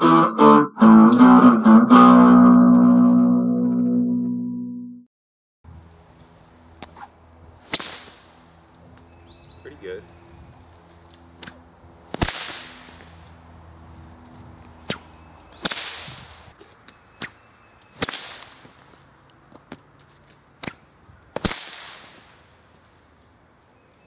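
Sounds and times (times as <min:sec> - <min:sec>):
whip cracking: 0:06.8 - 0:08.3, 0:11.4 - 0:13.2, 0:14.8 - 0:18.9, 0:20.6 - 0:22.4.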